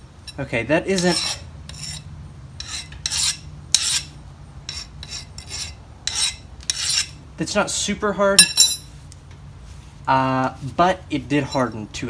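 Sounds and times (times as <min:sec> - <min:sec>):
file rasping on metal blade: 0:00.3 - 0:07.2.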